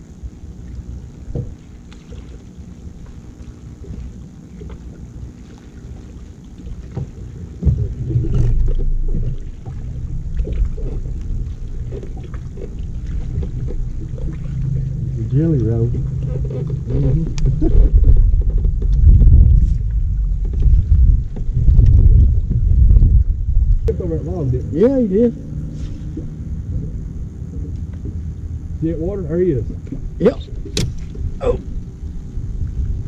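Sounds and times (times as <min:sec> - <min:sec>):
boat engine rumble: 0:00.0 - 0:33.0
knocks on a boat: 0:01.3 - 0:01.6, 0:29.8 - 0:31.2.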